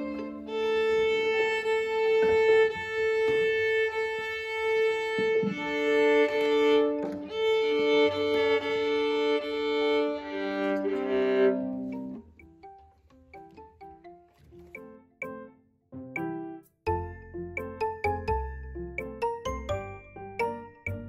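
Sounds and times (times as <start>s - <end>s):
bowed viola solo: 0.0s - 12.2s.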